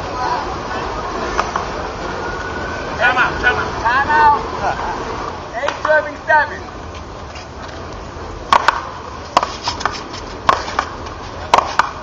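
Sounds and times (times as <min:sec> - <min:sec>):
ball cracking off paddles: 0:08.5 - 0:12.0.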